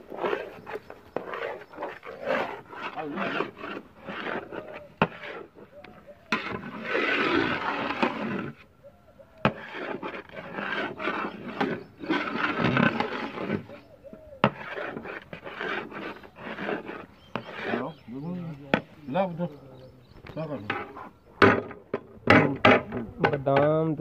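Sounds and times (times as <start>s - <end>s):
metal ladle stirring in a pot: 0.0s - 8.6s, 9.4s - 17.8s.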